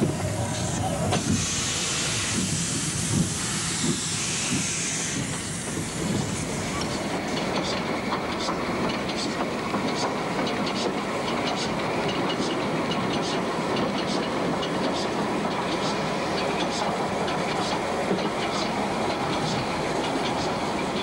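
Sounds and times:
steam locomotive exhaust beats: 0.0 - 21.0
steam hiss: 0.4 - 21.0
wheels clicking over rail joints: 6.0 - 21.0.

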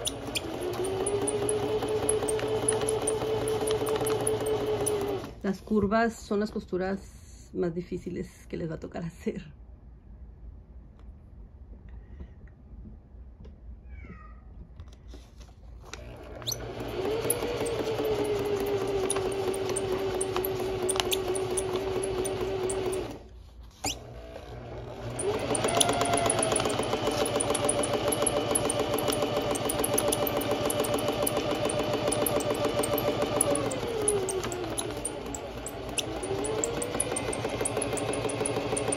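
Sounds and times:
sewing machine stitching: 0.0 - 5.4, 16.0 - 38.9.

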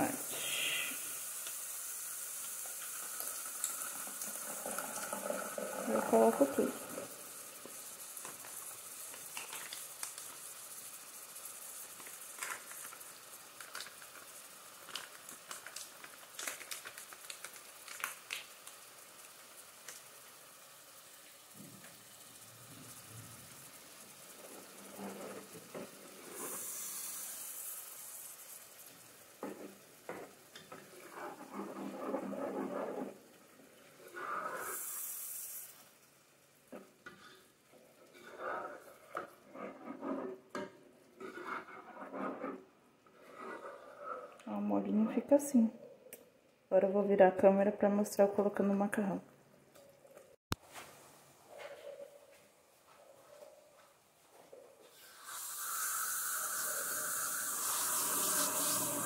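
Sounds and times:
sauce sizzling in a pot: 0.0 - 46.1, 52.3 - 59.0
plastic spatula scraping a pan: 24.5 - 26.7, 29.4 - 33.3, 38.0 - 44.5.

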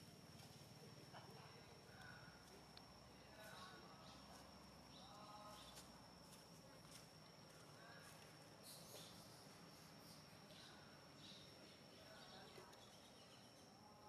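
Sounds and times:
high insect whine: 0.0 - 14.0
faint short chirping calls: 8.6 - 13.8.

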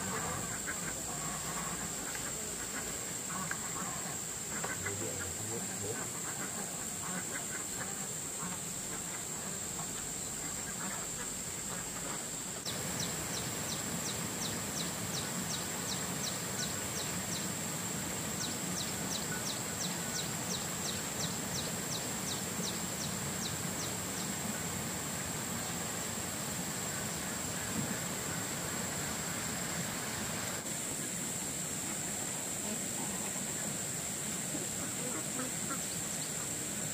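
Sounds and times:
ducks quacking: 0.0 - 17.5, 34.5 - 36.6.

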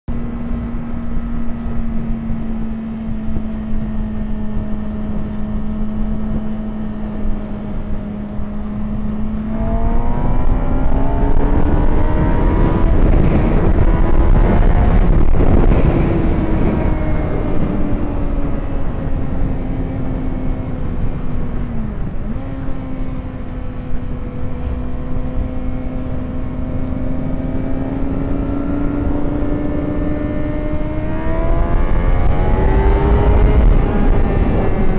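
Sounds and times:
motorcycle engines: 0.1 - 34.9
wind rush on microphone: 0.1 - 34.9.

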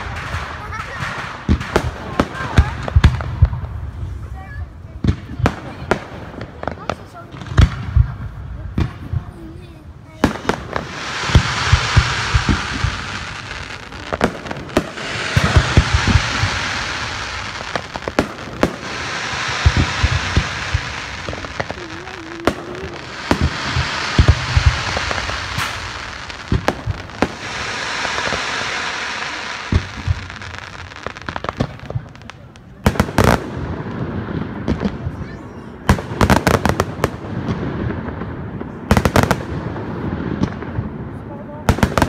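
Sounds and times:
crackling hiss of fireworks: 0.0 - 42.0
firework shells bursting: 10.2 - 35.0.

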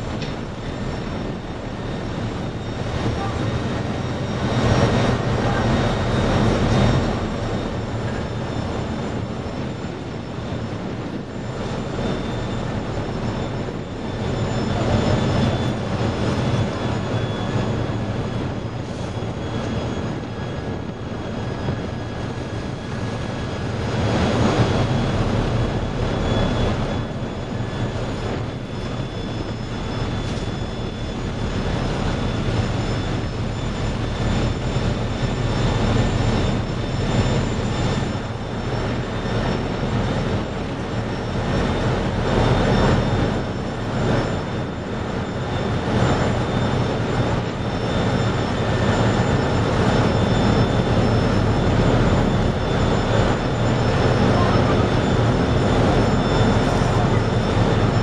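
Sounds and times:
boat diesel engines rumbling: 0.0 - 58.0
wind and sea rushing: 0.0 - 58.0.

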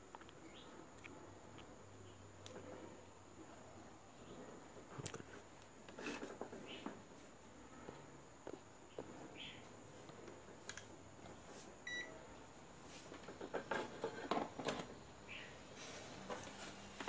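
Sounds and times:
faint high whine: 11.5 - 12.8.

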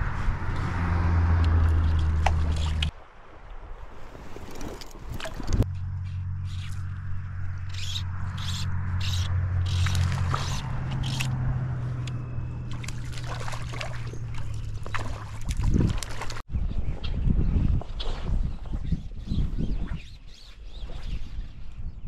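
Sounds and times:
fishing line hissing through guides: 7.7 - 12.1
fish splashing at surface: 12.7 - 16.4.

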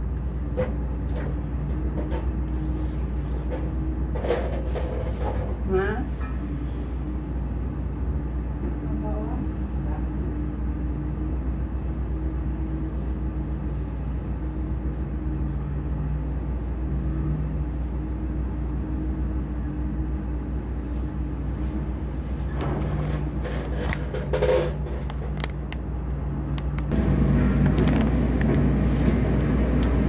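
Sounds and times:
heavy machinery engine drone: 0.0 - 30.0
sharp knocks and clatter: 22.5 - 25.5.

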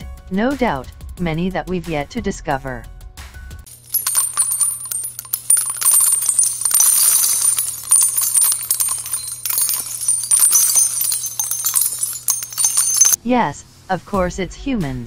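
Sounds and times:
metallic jingling clinks: 3.7 - 13.2.

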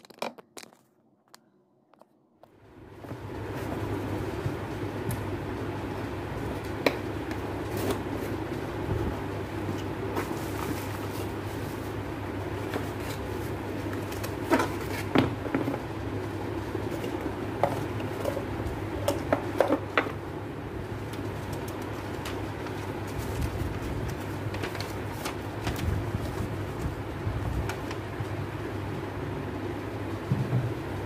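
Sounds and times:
cardboard packaging rustling: 0.0 - 1.4, 21.1 - 28.0
steady low hum: 0.2 - 31.0.

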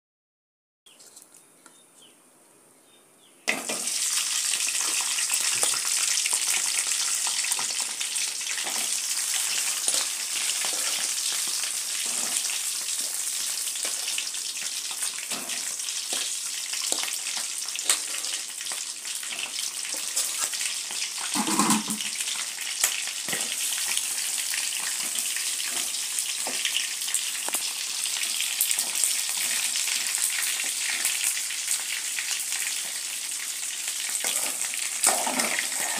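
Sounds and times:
chicken sizzling in hot oil: 3.5 - 35.9
loud knock: 21.4 - 22.1.

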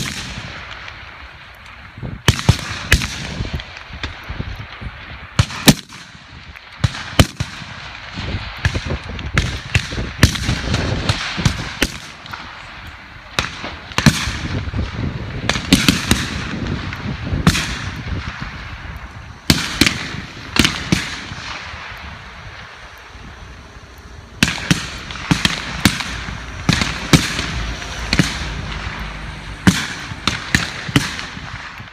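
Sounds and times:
rifle shots with echo: 0.0 - 4.3, 5.3 - 31.9
wind rumbling on microphone: 0.0 - 31.9.

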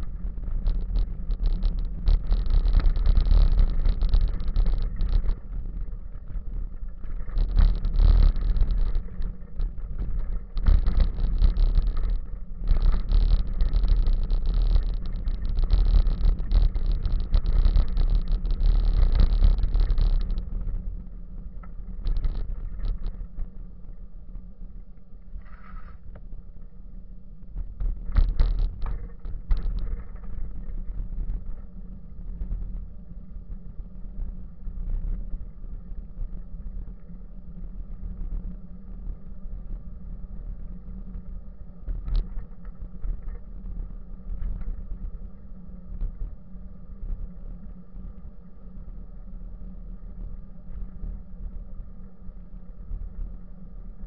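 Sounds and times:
bicycle tyres rumbling on pavement: 0.0 - 23.6
wind on microphone: 0.0 - 54.0.

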